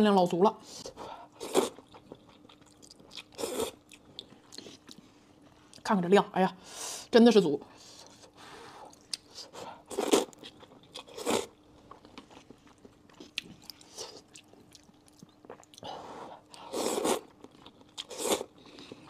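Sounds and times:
soft chewing: 0.8s - 5.9s, 7.8s - 19.0s
wet noodle slurps: 16.7s - 17.3s.

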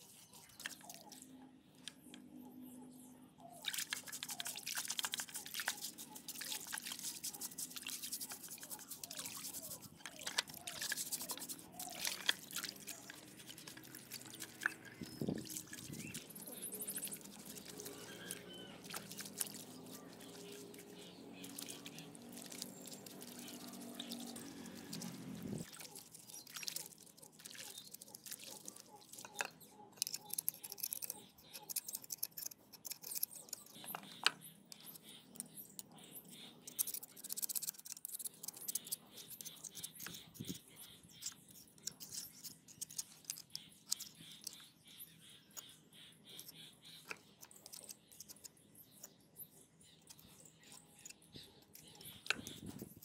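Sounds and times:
scrubbing and splashing water: 3.6s - 31.2s.

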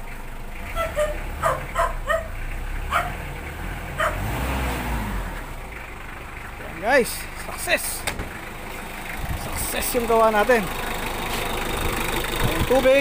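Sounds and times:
diesel engine running: 0.0s - 13.0s
dog barking: 0.8s - 3.2s, 4.0s - 4.3s.

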